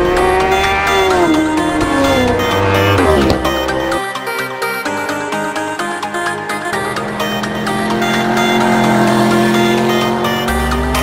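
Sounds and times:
motorcycle passing by: 0.0 - 4.1, 6.7 - 11.0
electronic music with beat: 0.0 - 11.0.

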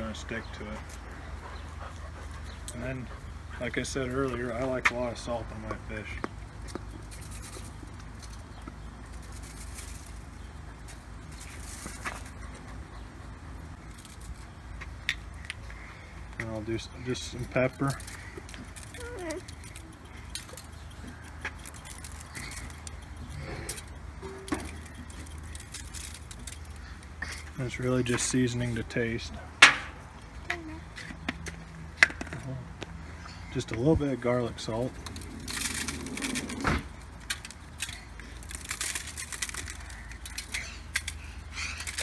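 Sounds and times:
pepper shaker rattling: 7.0 - 12.4, 17.8 - 27.4, 34.9 - 42.0
light ticks of salt: 17.4 - 23.9, 37.2 - 42.0.

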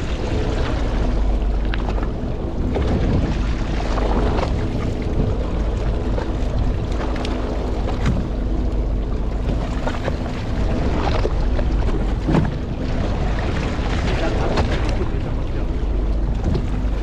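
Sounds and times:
boat engine droning: 0.0 - 17.0
wind buffeting microphone: 0.0 - 17.0.

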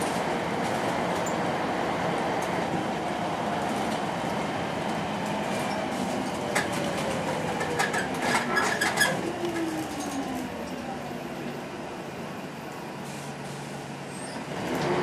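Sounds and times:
bus body rattling and clicking: 0.0 - 1.5, 3.6 - 11.6
bus engine and road noise: 0.0 - 15.0.

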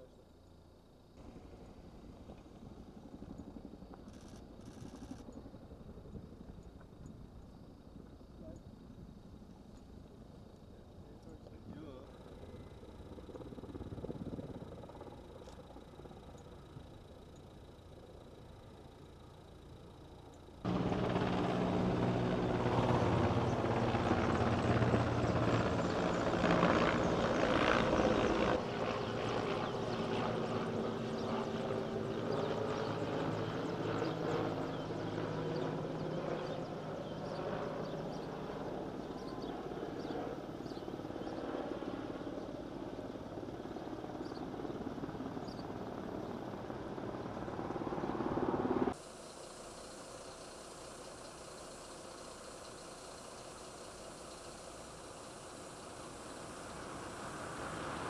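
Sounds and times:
helicopter rotor drone: 0.0 - 58.0.

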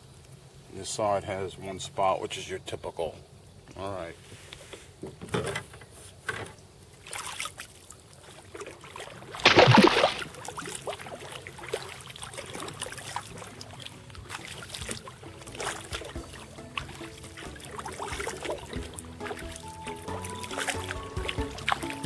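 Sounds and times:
water dripping and trickling: 6.6 - 22.0
kayak paddle strokes in water: 7.0 - 22.0.

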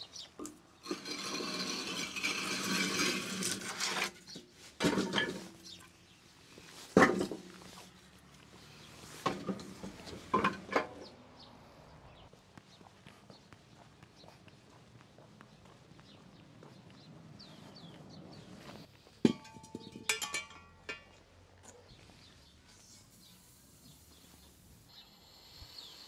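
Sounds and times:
utensils scraping rustle: 0.4 - 7.9
cookware knocks and clinks: 19.3 - 21.2.

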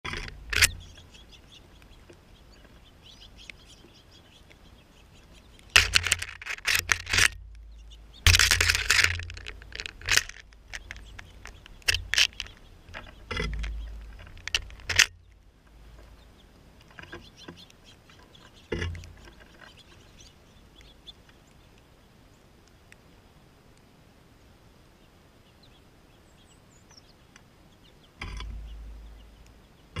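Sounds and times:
rustling and sharp clicks: 0.1 - 2.8, 5.2 - 16.2
faint bird chirps: 0.6 - 5.7.

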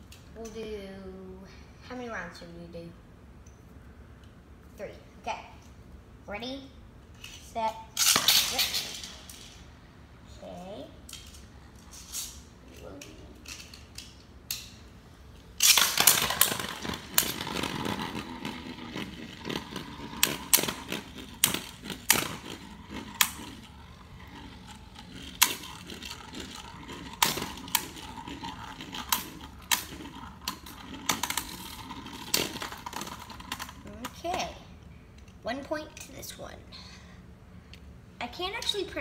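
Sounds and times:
spinning tops whirring and scraping: 7.2 - 9.8, 10.4 - 35.4
spinning tops clacking: 15.6 - 34.4.

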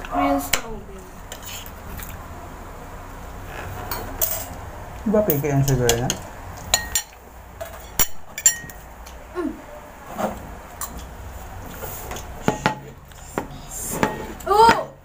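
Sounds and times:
cutlery and dishes clinking: 3.8 - 4.6, 5.2 - 8.8.

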